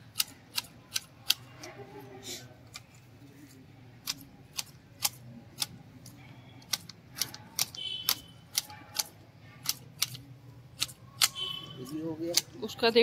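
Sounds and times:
garden shears snipping: 10.8s - 12.5s.

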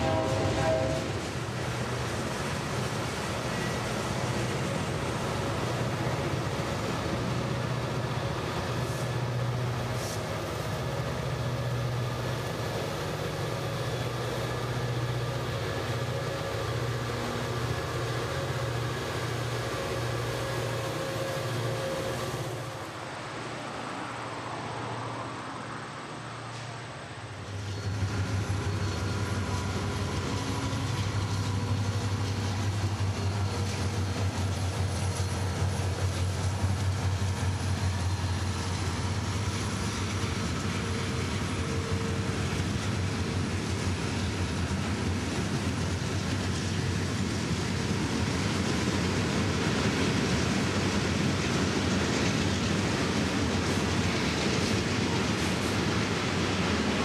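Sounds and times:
diesel locomotives passing: 0.0s - 57.0s.

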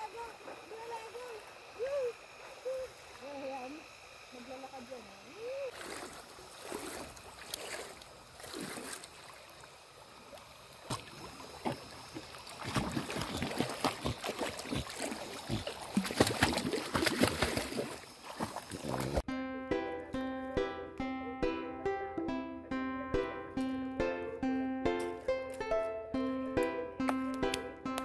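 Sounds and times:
dog splashing through water: 5.7s - 9.5s, 10.9s - 19.2s.

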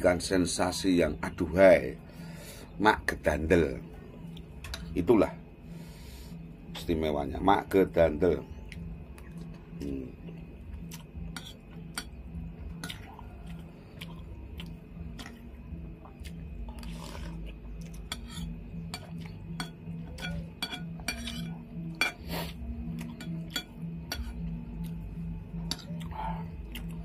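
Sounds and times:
chewing: 12.7s - 19.4s, 25.6s - 27.0s
cutlery clinking on ceramic bowl: 18.0s - 22.2s, 23.1s - 24.4s.

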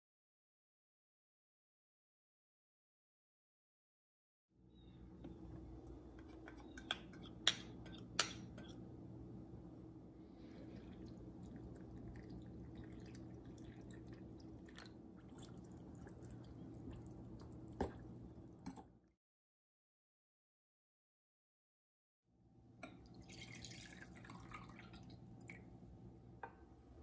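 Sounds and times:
steady low hum: 4.8s - 18.8s
water pouring: 10.5s - 18.8s, 23.0s - 25.8s.

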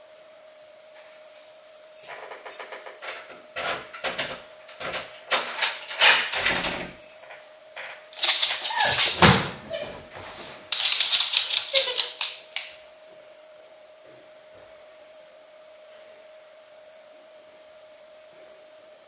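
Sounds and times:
faint steady hum: 0.0s - 19.0s
door creak: 2.0s - 7.0s, 7.8s - 10.5s
door lock clicks and key rattles: 2.6s - 7.0s.

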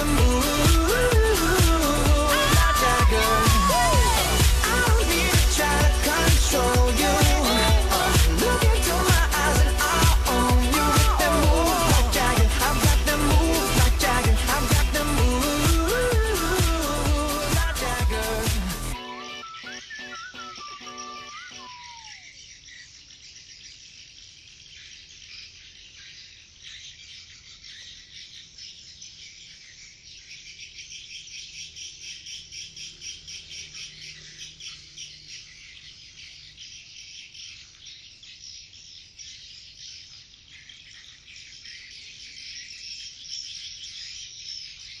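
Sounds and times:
swiftlets twittering: 0.0s - 14.6s, 18.9s - 22.3s.

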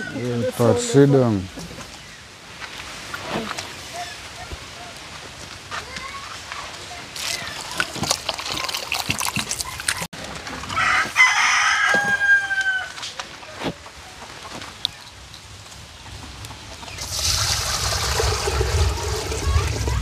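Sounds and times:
farmyard fowl call: 10.7s - 13.1s.

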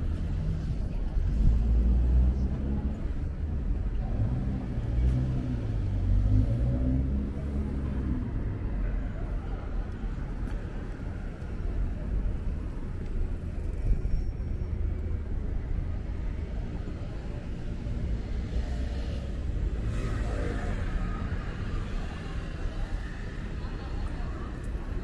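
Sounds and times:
traffic rumble: 0.0s - 25.0s
voices: 19.5s - 25.0s.

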